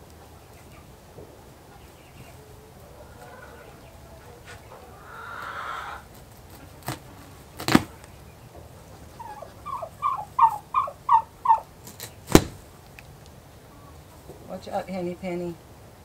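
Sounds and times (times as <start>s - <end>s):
chicken calling: 0.0s - 12.8s
sharp snaps: 6.5s - 8.2s, 11.8s - 13.4s.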